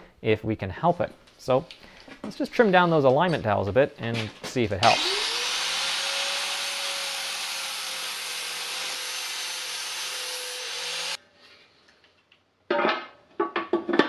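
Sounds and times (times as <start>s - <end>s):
grinder grinding steel: 4.8s - 11.2s.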